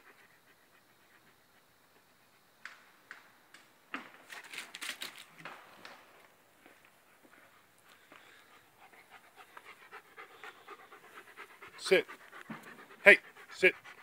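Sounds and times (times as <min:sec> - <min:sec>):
dog panting: 0:00.0 - 0:02.6, 0:07.1 - 0:14.0.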